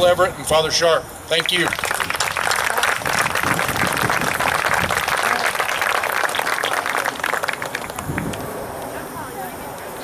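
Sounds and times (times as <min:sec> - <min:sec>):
crowd applauding: 0:01.4 - 0:08.5.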